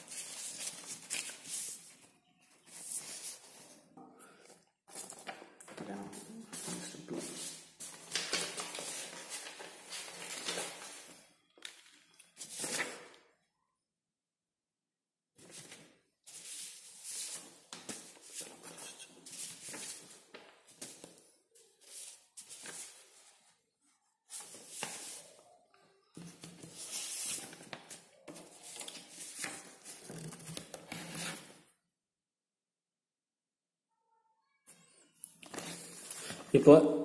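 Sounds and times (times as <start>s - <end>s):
paper rustling: 0.0s - 3.8s, 6.5s - 13.2s, 15.4s - 23.5s, 24.3s - 25.4s, 26.2s - 31.6s, 35.4s - 36.6s.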